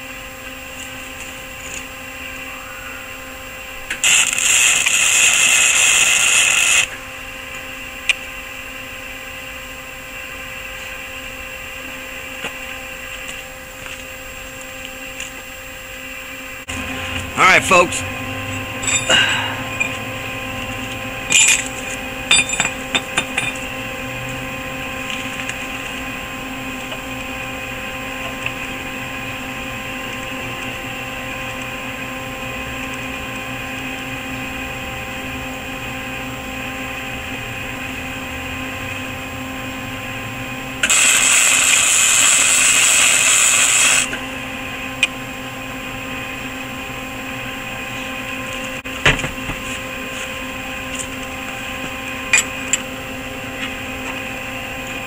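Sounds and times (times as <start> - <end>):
steady hum: 0.0 - 55.0
welder arc hissing: 3.9 - 7.0, 40.8 - 44.2.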